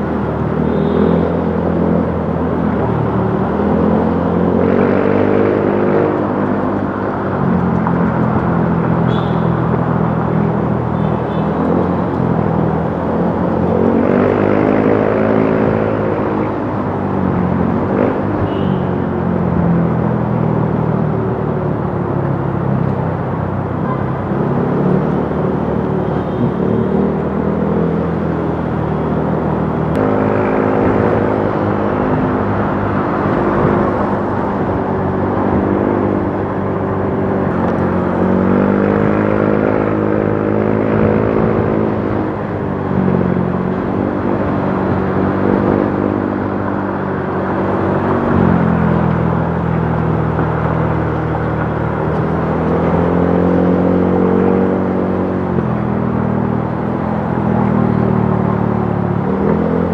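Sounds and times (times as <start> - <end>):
wind and road noise: 0.0 - 59.9.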